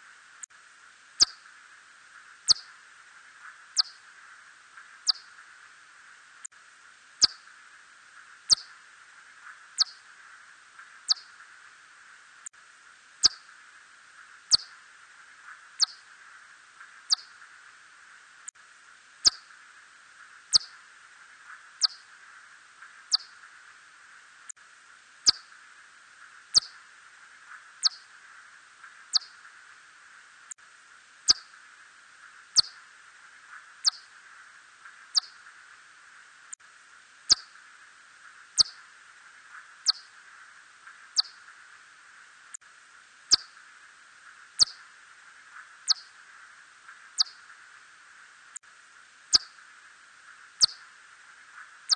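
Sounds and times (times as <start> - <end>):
steady hiss: 0.0 - 51.9
bat chirps: 1.2 - 1.4, 2.5 - 2.8, 3.8 - 4.0, 5.0 - 5.4, 7.2 - 7.4, 8.5 - 8.7, 9.8 - 10.0, 11.1 - 11.3, 13.2 - 13.5, 14.5 - 14.7, 15.8 - 16.0, 17.1 - 17.4, 19.2 - 19.5, 20.5 - 20.8, 21.8 - 22.1, 23.1 - 23.4, 25.2 - 25.5, 26.5 - 26.8, 27.8 - 28.1, 29.1 - 29.4, 31.3 - 31.5, 32.6 - 32.8, 33.8 - 34.1, 35.1 - 35.4, 37.3 - 37.6, 38.6 - 38.8, 39.8 - 40.1, 41.2 - 41.5, 43.3 - 43.6, 44.6 - 44.9, 45.9 - 46.1, 47.2 - 47.5, 49.3 - 49.6, 50.6 - 50.9.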